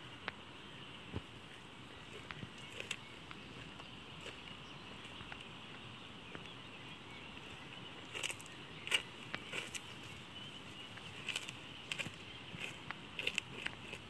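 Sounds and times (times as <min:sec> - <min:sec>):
goat chewing bread: 0:11.1 - 0:14.0.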